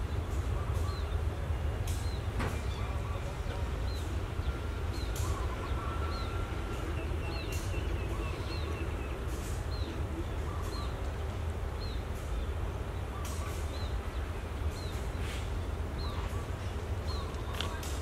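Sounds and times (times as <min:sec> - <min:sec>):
faint bird calls: 0:02.0 - 0:11.1.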